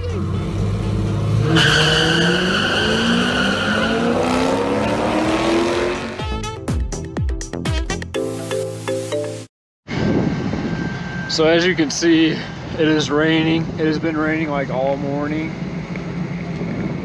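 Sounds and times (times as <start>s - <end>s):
car engines revving: 0.0s - 6.2s
tyre squeal: 1.4s - 4.6s.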